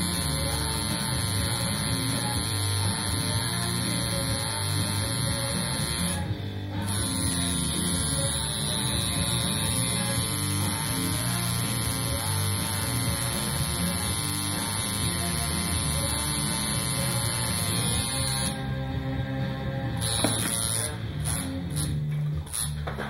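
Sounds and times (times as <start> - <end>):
tattoo machine buzzing: 0.0 - 18.8, 19.9 - 22.8.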